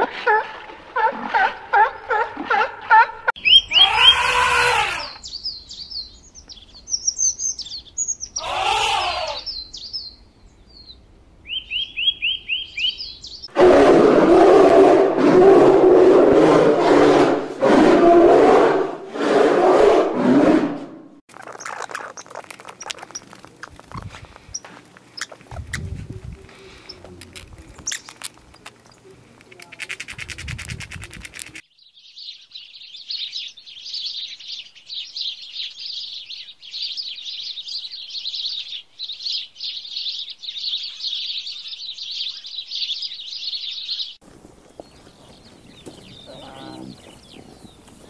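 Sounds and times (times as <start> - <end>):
elephant trumpeting: 0.0 - 5.2, 8.4 - 9.5, 13.5 - 20.9
birds chirping: 1.0 - 13.6, 21.3 - 48.0.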